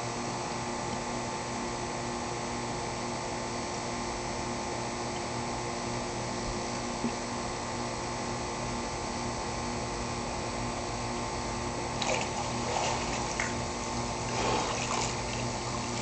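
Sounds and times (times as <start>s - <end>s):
steady mechanical hum: 0.0s - 16.0s
pool water splashing: 11.9s - 16.0s.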